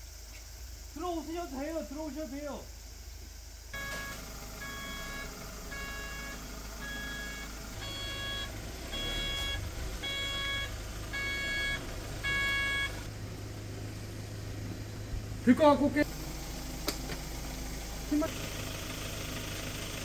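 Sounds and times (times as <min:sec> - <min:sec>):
reversing alarm beeping: 0:03.8 - 0:13.1
vehicle engine running: 0:03.8 - 0:20.0.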